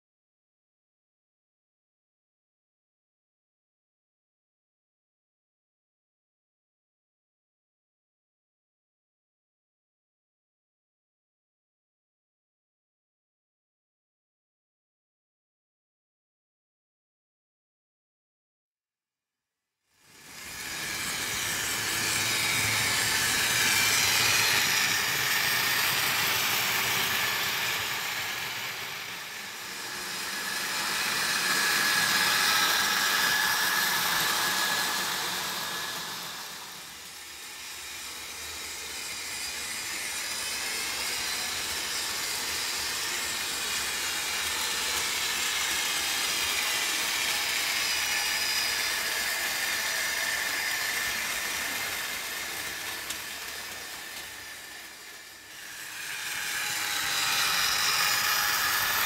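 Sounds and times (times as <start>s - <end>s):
model trains running on metal track: 20.0s - 59.0s.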